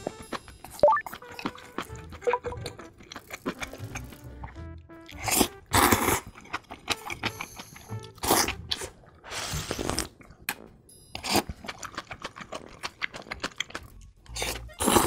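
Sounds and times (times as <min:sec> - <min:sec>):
wet chewing clicks: 0:00.0 - 0:09.2, 0:09.8 - 0:15.0
faint background music: 0:00.0 - 0:15.0
noodle slurping: 0:05.1 - 0:07.4, 0:08.1 - 0:10.2.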